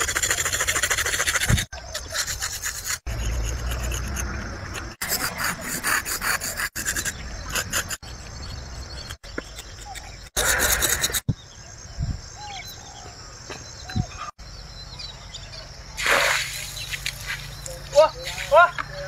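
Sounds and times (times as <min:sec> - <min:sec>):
drawing stick scraping on concrete: 0:00.0 - 0:11.3.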